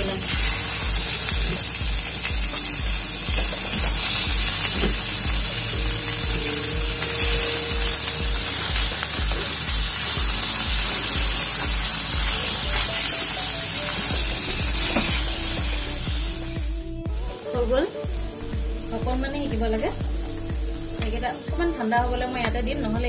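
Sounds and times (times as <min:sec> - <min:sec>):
fish sizzling in hot oil: 0:00.0 - 0:18.8
background music with regular beat: 0:00.0 - 0:23.0.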